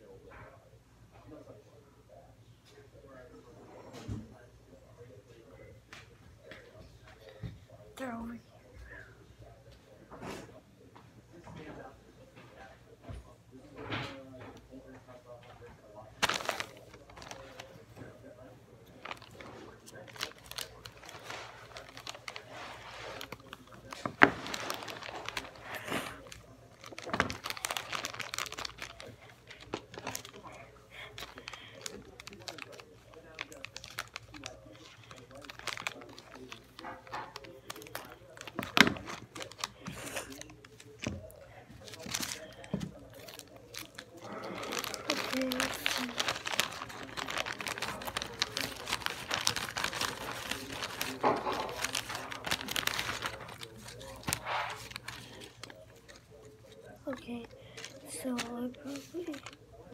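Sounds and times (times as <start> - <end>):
plastic bag crinkling: 15.9 - 59.9.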